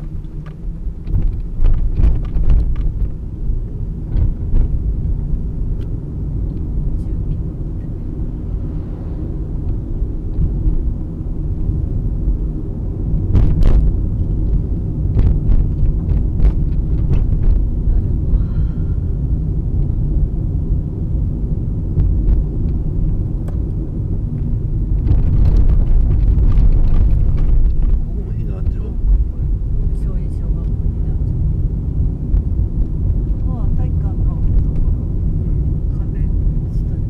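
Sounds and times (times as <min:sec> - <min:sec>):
car knocks and jolts: 0:00.0 - 0:03.3, 0:13.2 - 0:17.9, 0:24.4 - 0:29.3
car road and engine rumble: 0:00.0 - 0:37.0.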